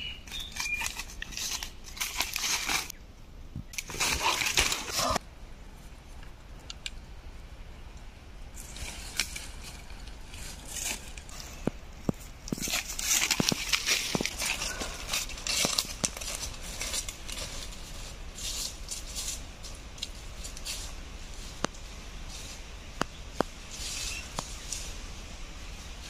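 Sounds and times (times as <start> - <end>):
footsteps on dry leaves: 0.0 - 3.0, 8.6 - 26.0.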